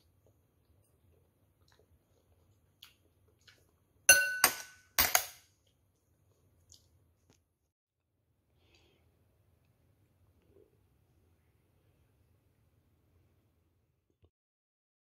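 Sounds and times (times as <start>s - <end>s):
spoon and chopsticks clinking bowl: 4.1s - 5.4s.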